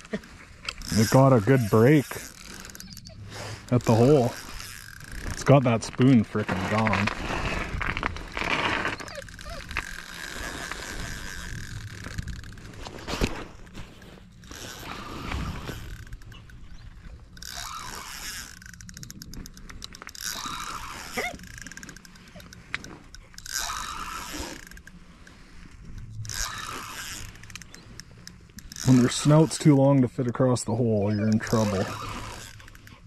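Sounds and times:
fishing reel clicking: 0:00.0 - 0:06.0, 0:08.3 - 0:12.9, 0:14.4 - 0:30.0, 0:31.2 - 0:33.0.

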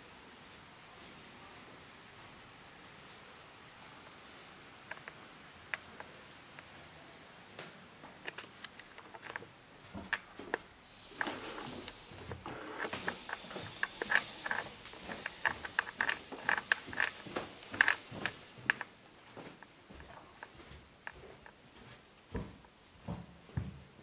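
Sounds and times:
steady hiss: 0:00.0 - 0:23.4
footsteps on stairs: 0:09.4 - 0:24.0.

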